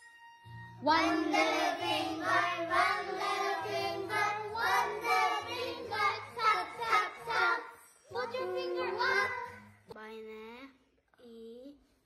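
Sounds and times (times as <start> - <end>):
children singing: 0.8 - 9.7.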